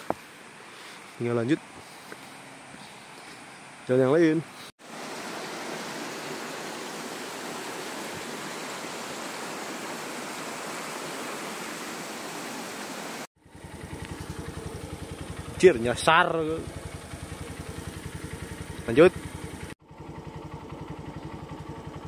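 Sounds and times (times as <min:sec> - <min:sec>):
stream flowing over stones: 0:04.8 - 0:13.3
motorcycle engine idling: 0:13.4 - 0:22.0.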